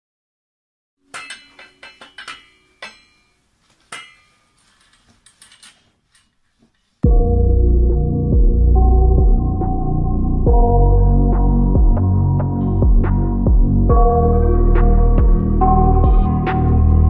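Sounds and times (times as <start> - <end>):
metal parts clinking together: 1.1 - 6.4
loud music with heavy bass: 7.0 - 17.0.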